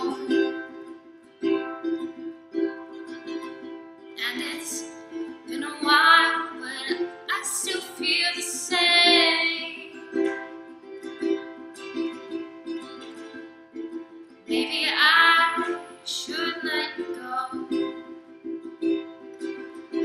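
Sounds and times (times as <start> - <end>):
woman singing: 0.0 - 0.6, 4.2 - 10.3, 14.5 - 18.0
ukulele strumming: 0.0 - 20.0.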